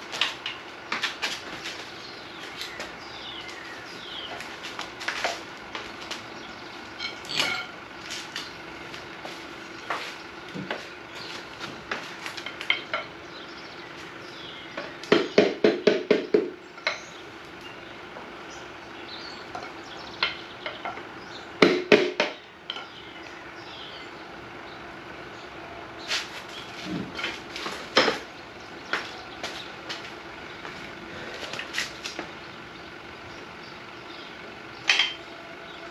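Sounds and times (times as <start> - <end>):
metal tools clinking: 7.0 - 7.8, 34.9 - 35.2.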